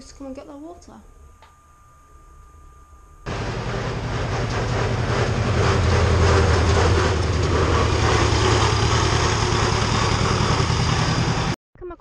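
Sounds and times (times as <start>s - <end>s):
tractor engine chugging: 3.3s - 11.6s.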